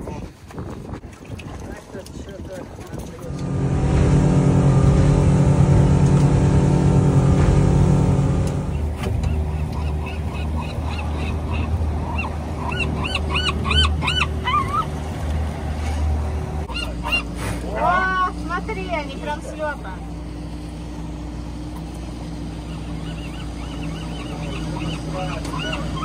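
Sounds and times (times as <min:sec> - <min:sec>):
boat engine running: 0:00.8 - 0:26.0
birds crying: 0:09.2 - 0:15.0, 0:16.7 - 0:17.4, 0:22.3 - 0:26.0.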